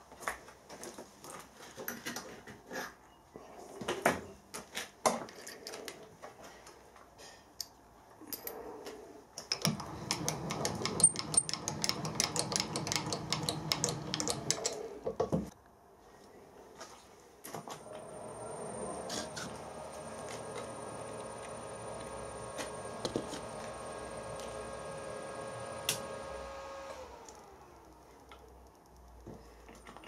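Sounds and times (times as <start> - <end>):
scattered clicks and knocks: 9.4 - 15.6
milling cutter cutting metal: 9.7 - 15.0, 17.8 - 27.4.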